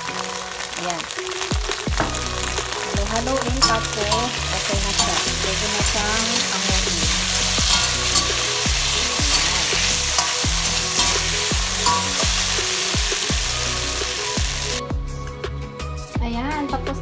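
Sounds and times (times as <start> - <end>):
carrots sizzling in oil: 0.0 - 14.8
metal spatula scraping wok: 3.4 - 14.8.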